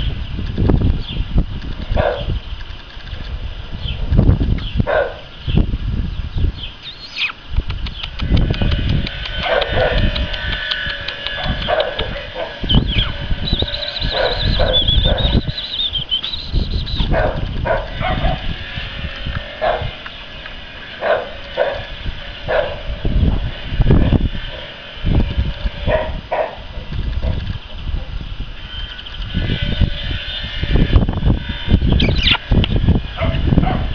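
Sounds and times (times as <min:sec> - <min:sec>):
puppies yipping: 0:06.8 - 0:07.4, 0:08.0 - 0:18.5, 0:19.2 - 0:21.9, 0:31.9 - 0:32.6
high wavering whistle: 0:12.6 - 0:17.1, 0:32.0 - 0:32.4.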